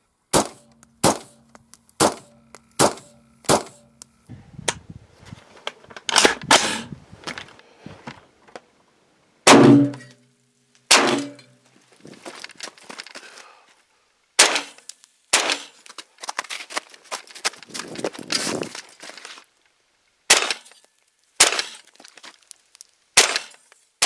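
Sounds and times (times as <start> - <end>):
rifle shots: 0.3 - 1.4, 2.0 - 3.9, 9.5 - 10.1, 10.9 - 11.4, 14.4 - 15.7
rustling handling noise: 5.0 - 8.7, 11.5 - 13.9, 14.8 - 19.8, 20.7 - 22.8
metallic ringing: 9.6 - 10.2.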